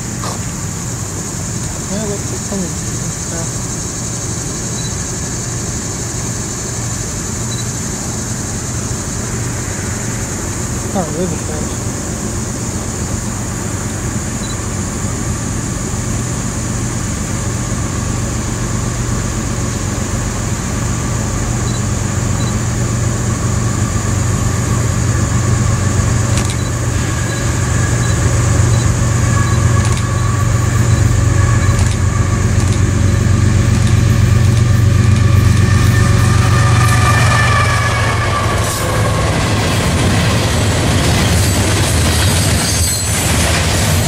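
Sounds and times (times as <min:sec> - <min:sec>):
locomotive engine drone: 0:00.0 - 0:44.0.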